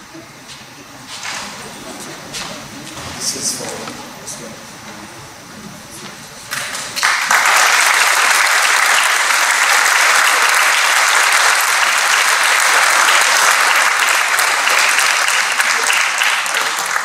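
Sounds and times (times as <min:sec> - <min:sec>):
audience applauding: 0:06.5 - 0:17.0.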